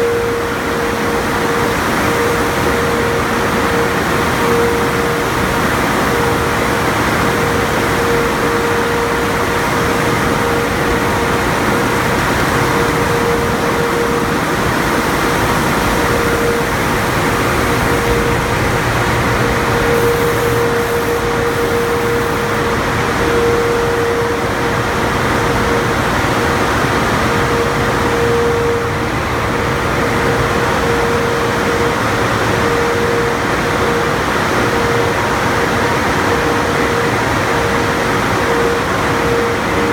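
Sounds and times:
mechanical whine: 0.0 - 39.9
water spray: 19.8 - 22.6.

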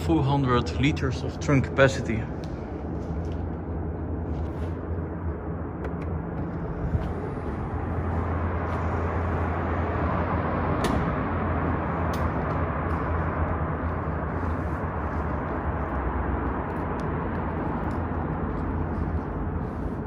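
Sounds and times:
diesel engine idling: 5.0 - 20.0.

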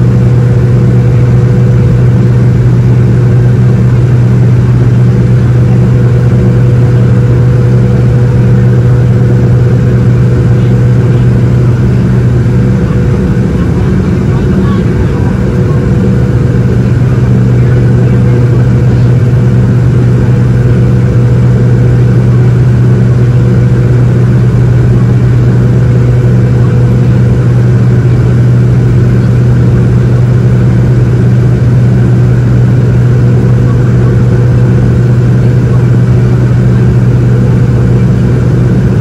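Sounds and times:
jet engine cabin drone: 0.0 - 39.0.

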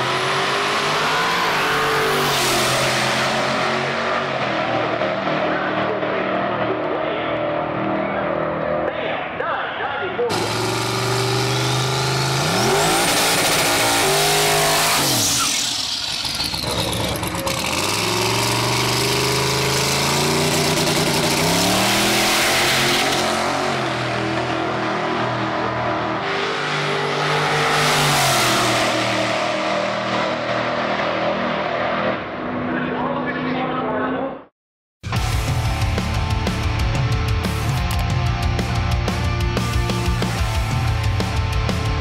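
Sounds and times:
truck engine revving: 0.0 - 9.0, 10.2 - 33.1.

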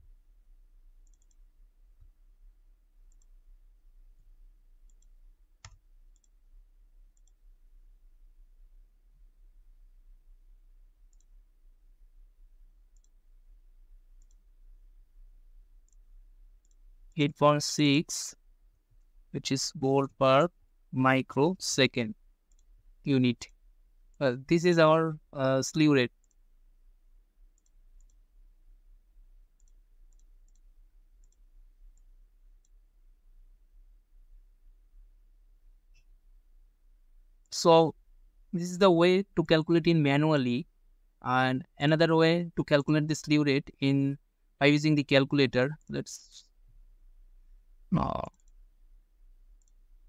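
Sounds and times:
steady low hum: 0.0 - 50.0
computer mouse clicks: 1.0 - 2.2, 3.1 - 3.4, 4.8 - 6.4, 7.2 - 7.4, 11.1 - 11.4, 12.9 - 13.2, 14.2 - 14.4, 22.5 - 22.7, 26.2 - 26.4, 27.6 - 28.2, 29.6 - 32.8, 49.6 - 49.8.

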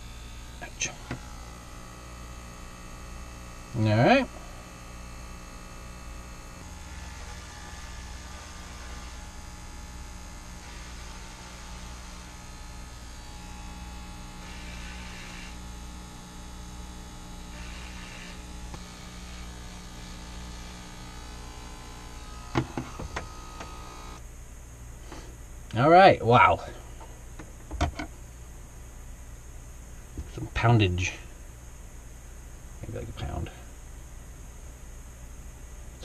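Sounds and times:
electric hair clippers buzzing: 0.0 - 24.2.

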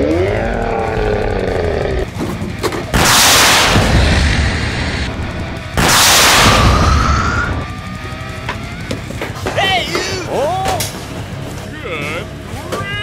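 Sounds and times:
explosion blasts: 2.9 - 7.7.

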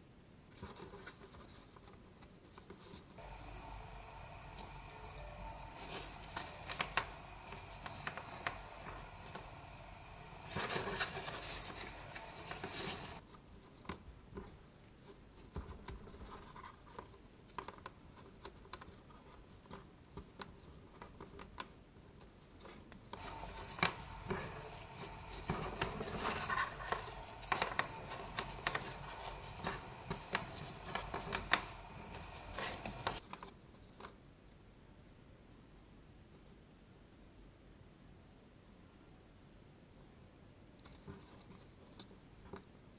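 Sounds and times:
cardboard and thread rubbing: 0.5 - 34.2
small clicks and rustles: 10.5 - 34.6.

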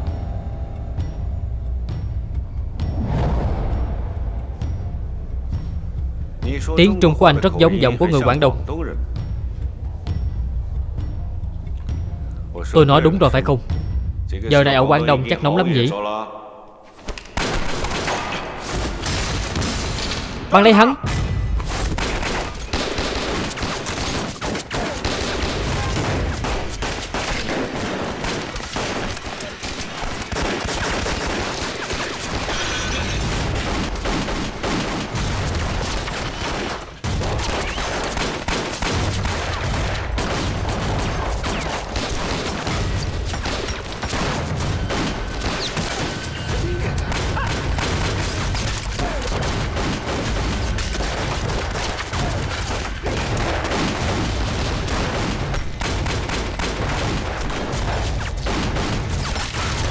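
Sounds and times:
pistol shots: 17.2 - 20.3, 21.8 - 59.9.

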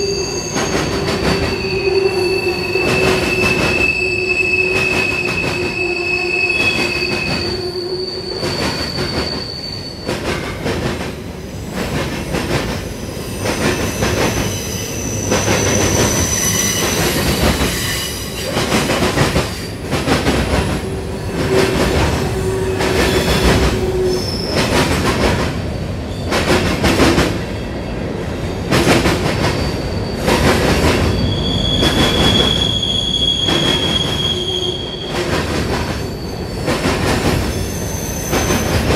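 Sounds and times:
high-pitched wheel squeal: 0.0 - 10.1, 31.0 - 35.2, 37.5 - 38.7
train wheels clacking over rail joints: 15.3 - 23.8, 36.6 - 37.6.

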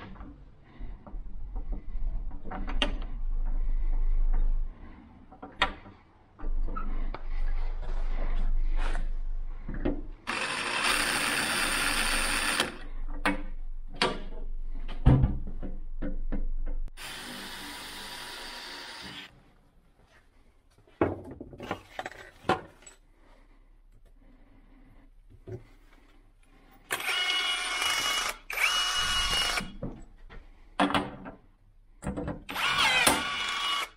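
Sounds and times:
cordless drill drilling into metal: 10.3 - 12.8, 17.0 - 19.3, 26.9 - 29.7, 32.5 - 33.9.

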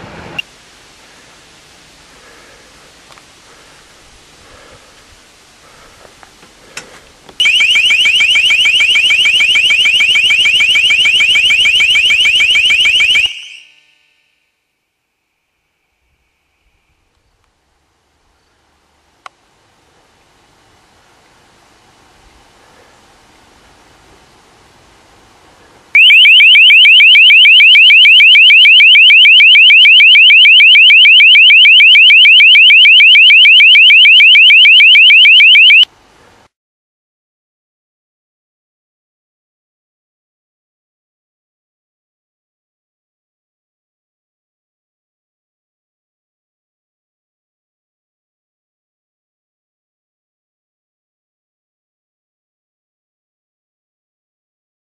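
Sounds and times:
faint wind-like rustle: 0.0 - 10.8, 15.6 - 26.0, 35.8 - 36.5
electronic warbling alarm tone: 7.4 - 13.8, 26.0 - 35.8.

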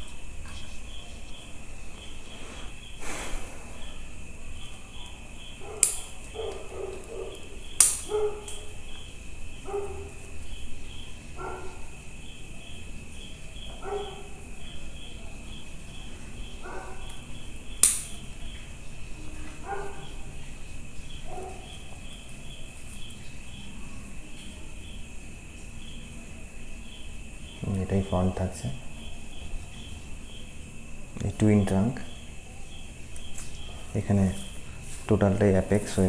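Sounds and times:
crickets chirping: 0.0 - 36.0
dog barking: 5.6 - 8.8, 9.6 - 10.2, 11.4 - 11.9, 13.6 - 14.5, 16.6 - 17.2, 19.6 - 20.2, 21.2 - 21.8.

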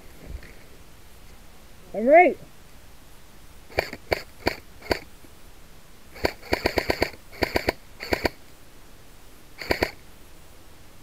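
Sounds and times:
airsoft gun shots: 3.7 - 5.1, 6.2 - 8.4, 9.6 - 10.0.

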